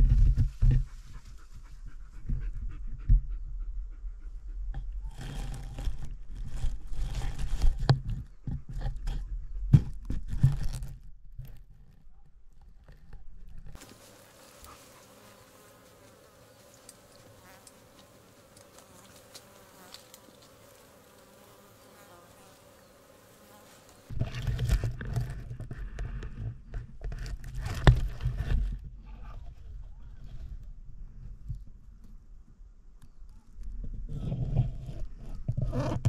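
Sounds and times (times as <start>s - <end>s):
insect buzzing: 13.8s - 24.2s.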